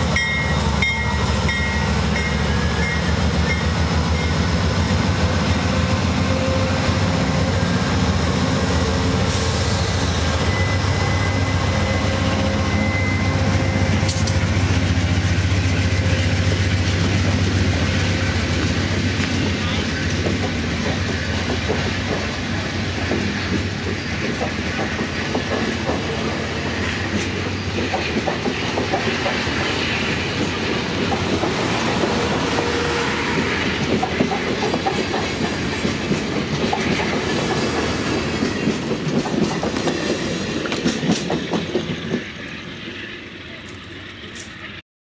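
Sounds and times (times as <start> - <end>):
train wheels rumbling on rail: 0.0 - 44.8
wheels clicking over rail joints: 18.6 - 42.5.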